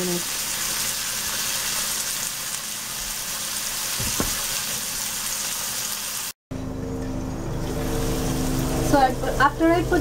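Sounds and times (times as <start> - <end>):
vegetables sizzling in hot oil: 0.0 - 6.4.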